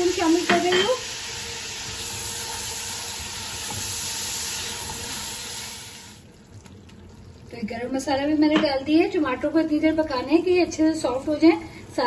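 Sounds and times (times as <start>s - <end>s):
food sizzling in pot: 0.0s - 6.2s.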